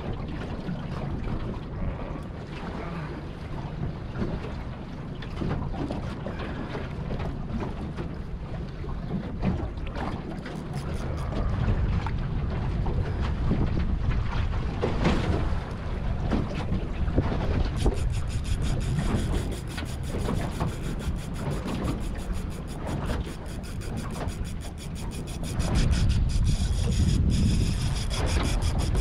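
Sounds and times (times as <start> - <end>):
rumble of sea and boat: 0.0 - 29.0
wind buffeting microphone: 3.4 - 29.0
fast high thin ticking: 10.4 - 11.4, 17.7 - 29.0.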